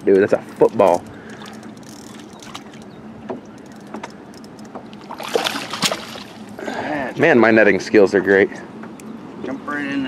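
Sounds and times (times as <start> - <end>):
wind: 0.0 - 10.0
fish splashing in water: 1.1 - 6.6
water wash: 4.9 - 6.6.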